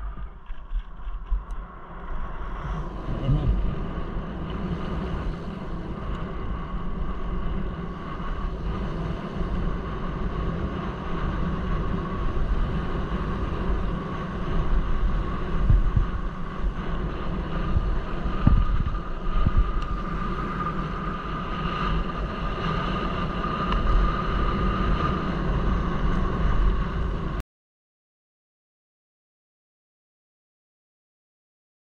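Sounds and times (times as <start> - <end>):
wind buffeting microphone: 0.0 - 27.4.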